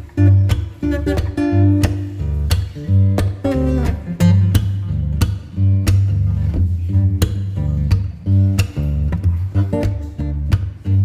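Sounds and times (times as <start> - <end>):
acoustic guitar strummed and plucked: 0.0 - 11.0.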